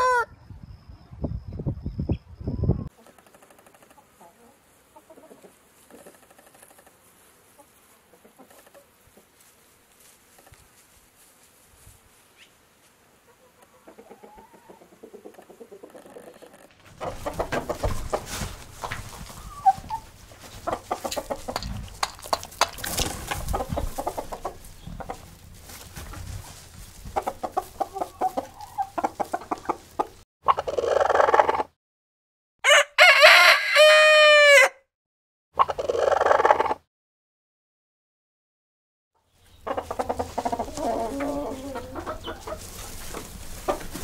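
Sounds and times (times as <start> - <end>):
hen drawn-out call: 0.0 - 0.3
hens clucking: 2.8 - 9.5, 13.2 - 31.8, 35.6 - 36.8, 39.5 - 44.0.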